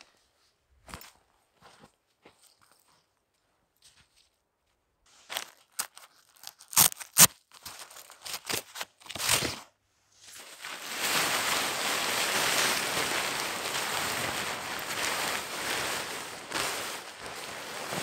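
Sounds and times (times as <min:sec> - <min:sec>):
tent fabric rustling: 0:09.2 - 0:18.0.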